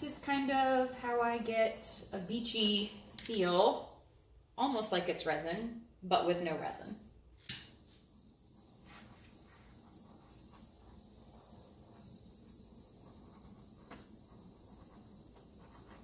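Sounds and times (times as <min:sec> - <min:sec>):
torch flame hissing: 0:00.0 - 0:03.6, 0:07.5 - 0:16.0.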